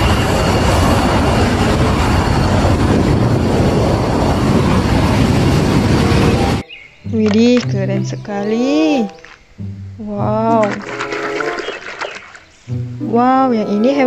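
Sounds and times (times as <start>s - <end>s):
jet engine roaring: 0.0s - 6.7s.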